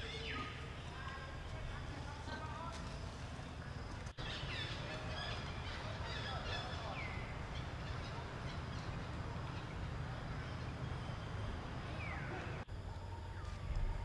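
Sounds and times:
birds chirping: 0:00.0 - 0:14.0
steady low rumble: 0:07.2 - 0:14.0.

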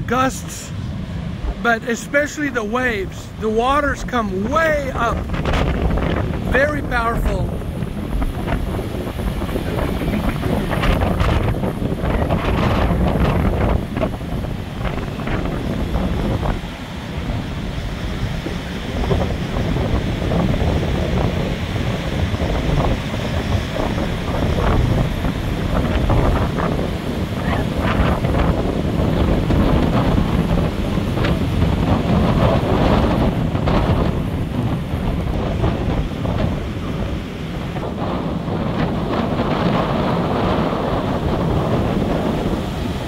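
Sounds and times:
heavy surf breaking: 0:00.0 - 0:43.0
wind buffeting microphone: 0:00.0 - 0:43.0.

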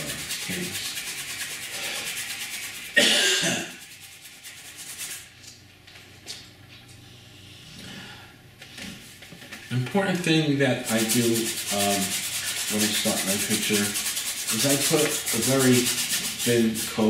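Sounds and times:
paintbrush scrubbing canvas: 0:00.0 - 0:03.0, 0:03.6 - 0:05.3, 0:10.8 - 0:17.0
person coughing: 0:03.0 - 0:03.8.

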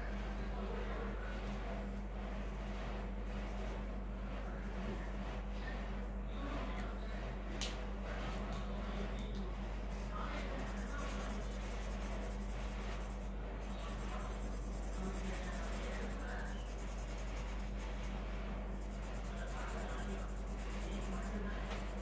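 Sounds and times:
steady low hum: 0:00.0 - 0:22.0
pencil shading on paper: 0:10.6 - 0:22.0.

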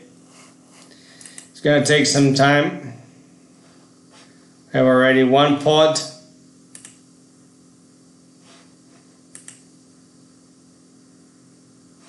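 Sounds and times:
steady low hum: 0:00.0 - 0:12.0
computer mouse clicks: 0:01.2 - 0:01.5, 0:06.7 - 0:07.0, 0:09.3 - 0:09.6.

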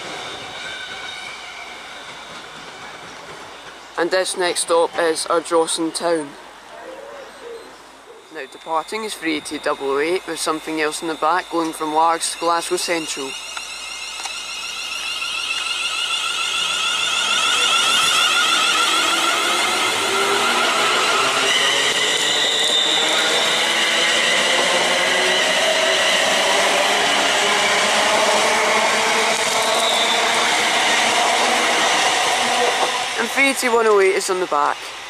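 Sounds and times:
train running noise: 0:00.0 - 0:06.7, 0:07.8 - 0:35.0
electric train whine: 0:00.0 - 0:06.8, 0:07.8 - 0:35.0.

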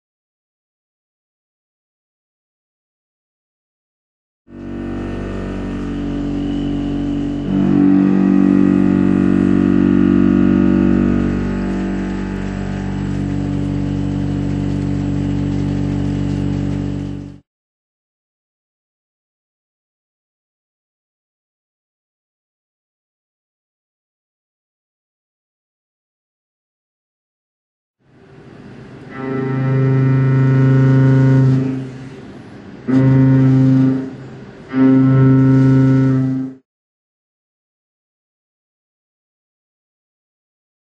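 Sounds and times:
milling machine cutting steel: 0:04.5 - 0:17.3.

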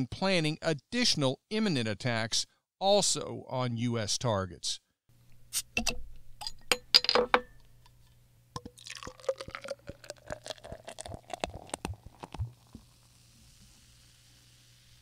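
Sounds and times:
ice clinking into a glass: 0:08.6 - 0:12.4
drink pouring into a glass: 0:08.6 - 0:15.0.

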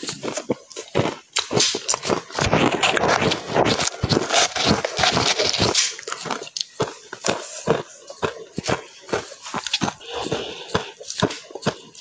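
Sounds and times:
chewing crunchy ice: 0:00.0 - 0:12.0.

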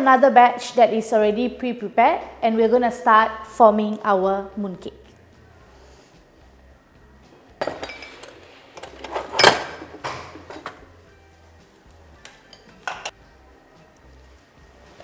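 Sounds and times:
dishes and utensils clattering: 0:07.6 - 0:10.9, 0:12.4 - 0:13.2.

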